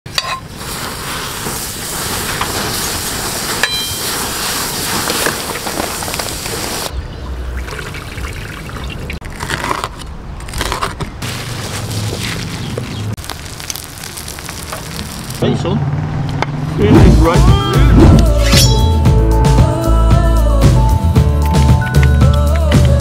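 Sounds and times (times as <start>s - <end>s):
handling noises: 3.5s - 6.9s, 9.5s - 15.4s
oil sizzling as meat deep-fries: 13.2s - 15.4s.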